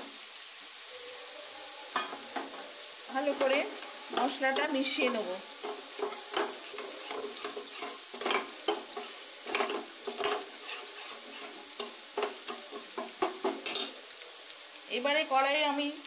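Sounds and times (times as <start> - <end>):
steady high hiss: 0.0 - 16.0
spoon scraping a steel bowl: 6.0 - 11.6
spoon clinking on metal: 13.6 - 13.9.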